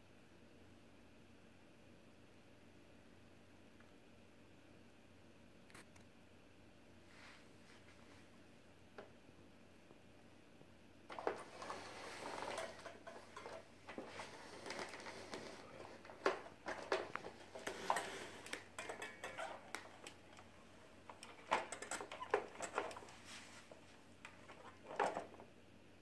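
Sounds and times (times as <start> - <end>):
soft rustling on a rug: 7.0 - 8.4, 11.1 - 18.6, 23.0 - 24.2.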